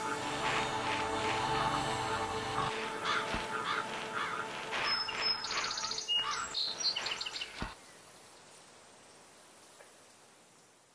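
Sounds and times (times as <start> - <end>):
birds chirping: 0.0 - 8.3.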